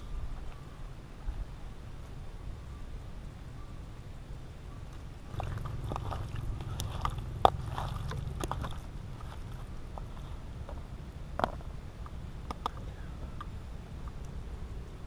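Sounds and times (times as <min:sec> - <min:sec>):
hand squelching raw meat: 0:05.3 - 0:10.4.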